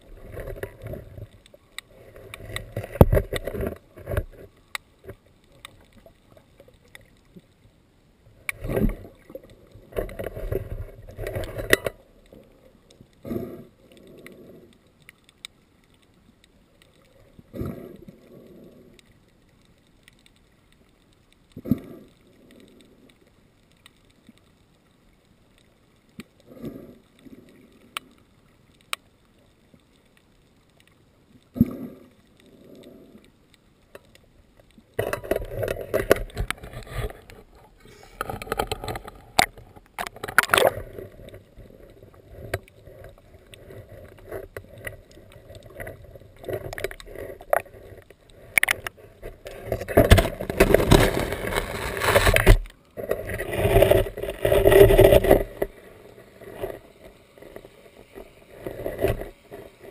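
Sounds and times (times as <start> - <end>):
small boat on water: 47.3 - 55.9.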